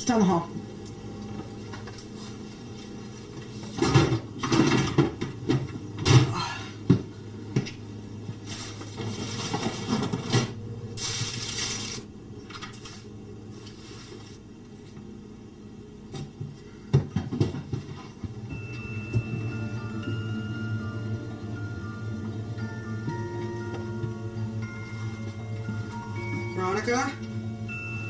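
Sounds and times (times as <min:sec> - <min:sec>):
low hum: 0:17.7 - 0:28.0.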